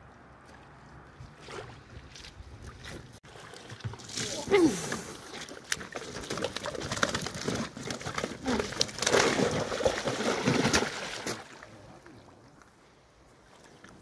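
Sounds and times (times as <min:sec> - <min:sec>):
water splashing and dripping: 0:01.4 - 0:11.7.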